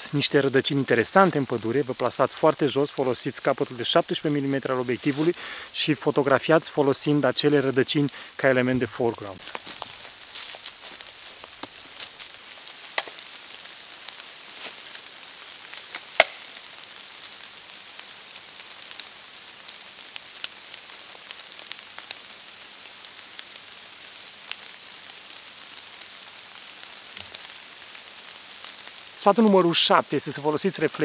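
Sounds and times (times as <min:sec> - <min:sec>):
forest ambient hiss: 0:00.0 - 0:31.0
sharp ticks and crackles: 0:09.4 - 0:31.0.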